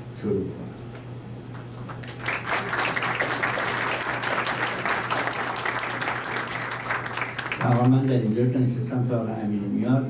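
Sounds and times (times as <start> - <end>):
low steady hum: 0.0 - 10.0
audience applauding: 1.8 - 8.7.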